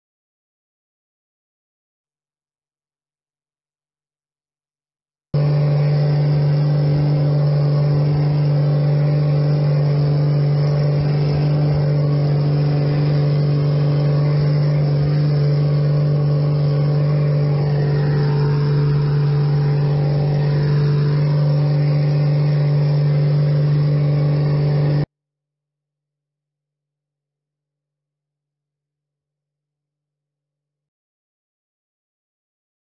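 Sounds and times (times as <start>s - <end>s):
steady low engine drone: 5.4s - 25.1s.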